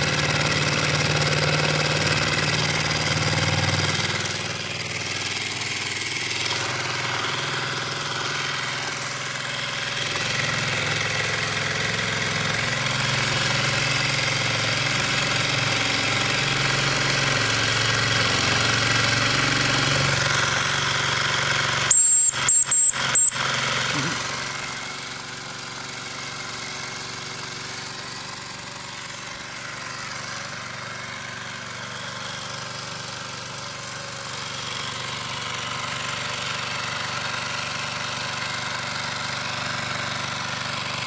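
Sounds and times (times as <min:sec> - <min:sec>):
model steam engine running: 0:00.0 - 0:41.0
shrill steam whistle toots: 0:21.9 - 0:23.4.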